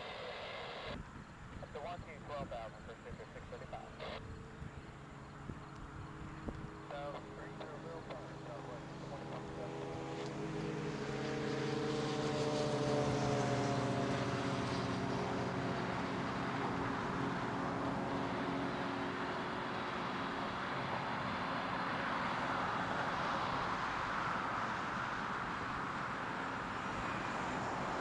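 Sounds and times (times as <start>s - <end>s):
passing vehicle engine hum: 1.6s - 28.0s.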